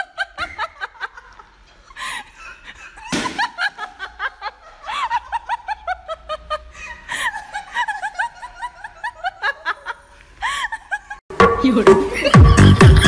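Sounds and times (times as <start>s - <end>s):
sharp smack: 3.1s - 3.4s.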